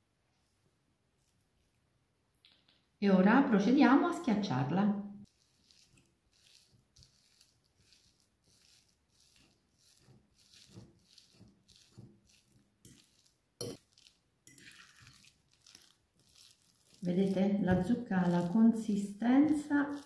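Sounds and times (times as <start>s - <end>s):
fork mashing pulp in glass bowl: 5.2s - 20.0s
fork clinking on glass: 12.9s - 13.8s, 14.5s - 15.1s.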